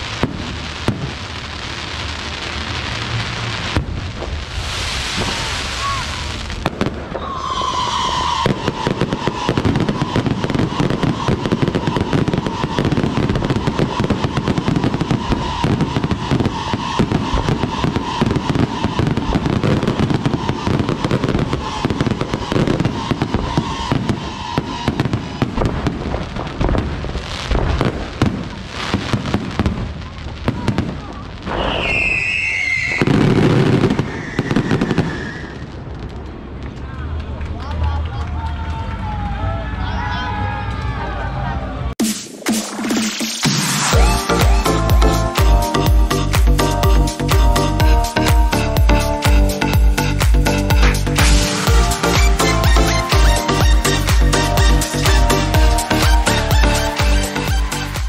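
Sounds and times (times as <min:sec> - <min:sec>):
loud firework bangs: 0:00.0 - 0:37.4, 0:49.2 - 0:58.0
fireworks crackling and popping: 0:00.0 - 0:38.4, 0:42.0 - 0:58.0.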